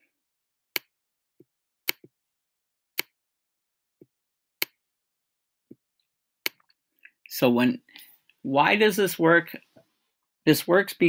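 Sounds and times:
stylus tapping on tablet screen: 1.9s - 2.1s.

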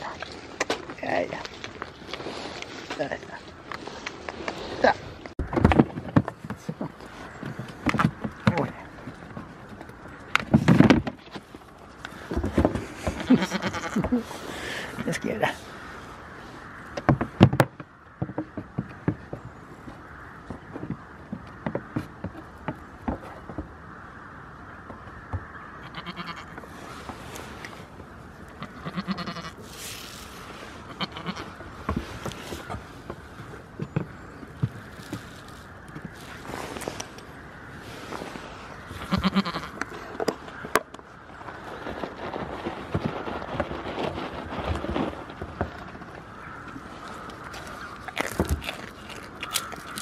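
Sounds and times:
goat bleating: 13.0s - 14.4s, 25.8s - 26.6s, 28.6s - 29.7s, 30.8s - 31.6s, 39.0s - 39.8s
hooves knocking on plastic tubs: 16.9s - 23.8s.

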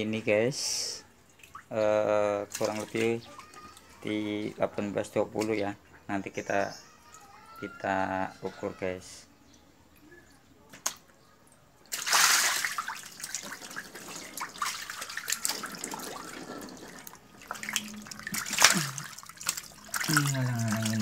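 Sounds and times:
water splashing and sloshing: 1.2s - 1.8s, 2.4s - 4.6s, 10.7s - 21.0s
fish thrashing in water: 11.9s - 21.0s.

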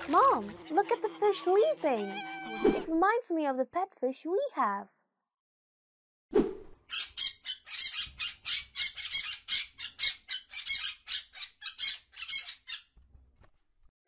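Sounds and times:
parrots squawking: 0.0s - 2.9s, 6.9s - 12.9s.

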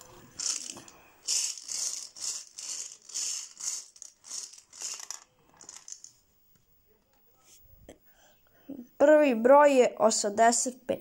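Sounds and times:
plastic balls rattling in bingo cage: 0.0s - 6.2s.

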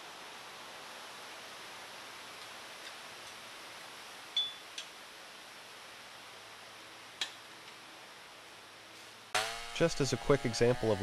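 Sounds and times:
ringing metal clink: 4.4s - 4.6s.

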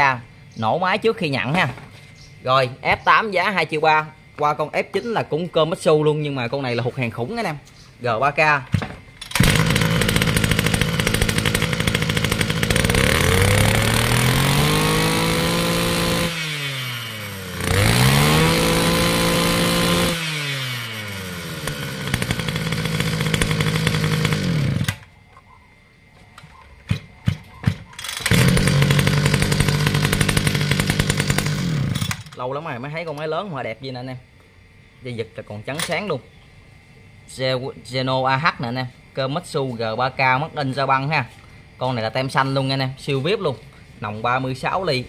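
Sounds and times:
brush-cutter engine revving: 9.2s - 25.1s, 26.9s - 32.4s.

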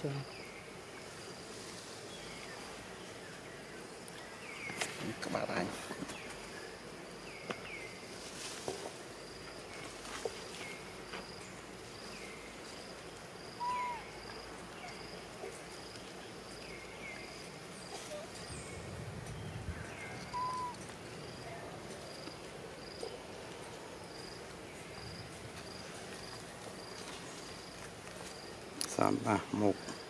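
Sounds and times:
loud short whistled call: 20.3s - 20.8s.

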